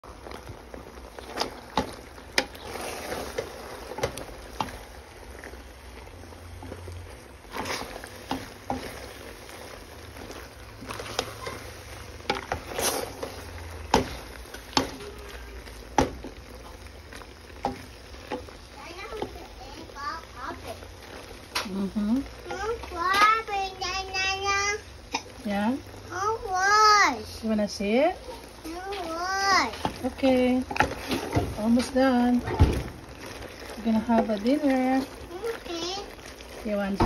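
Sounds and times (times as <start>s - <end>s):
wet sloshing stirring: 0.0s - 23.7s, 27.2s - 37.0s.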